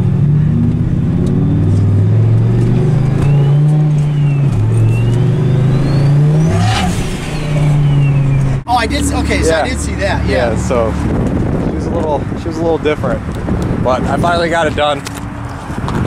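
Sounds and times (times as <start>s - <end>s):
engine accelerating from inside cab: 0.0s - 9.7s
turbo whistle: 3.2s - 8.5s.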